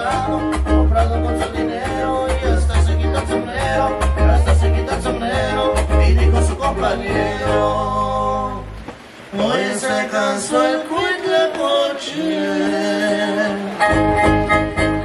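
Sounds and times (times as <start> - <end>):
live band music: 0.0 - 15.0
person singing: 0.0 - 15.0.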